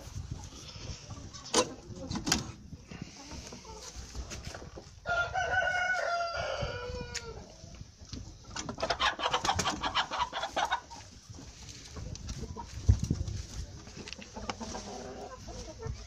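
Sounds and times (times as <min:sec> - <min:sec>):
chicken clucking: 0:00.0 - 0:16.0
rooster crowing: 0:05.0 - 0:07.3.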